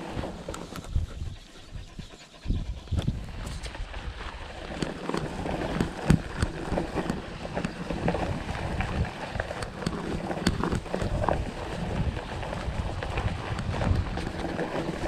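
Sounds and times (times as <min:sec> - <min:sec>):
wind on microphone: 0:00.0 - 0:15.0
bike rattles and knocks: 0:03.1 - 0:15.0
bike tyres rumbling on grass: 0:03.6 - 0:15.0.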